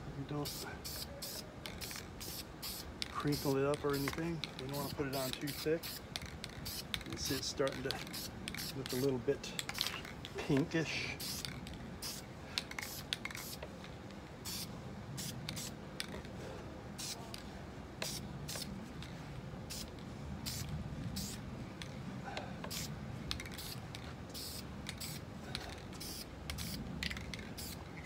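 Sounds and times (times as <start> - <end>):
spray-paint can hissing in bursts: 0.4 - 9.1, 11.2 - 13.6, 14.4 - 16.1, 17.0 - 17.2, 18.0 - 18.7, 19.7 - 22.0, 22.7 - 25.3, 25.9 - 28.0.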